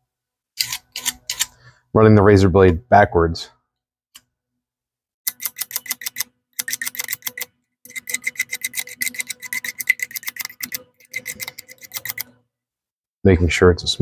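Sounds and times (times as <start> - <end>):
razor blade scraping metal: 0.6 - 1.6, 5.3 - 12.4.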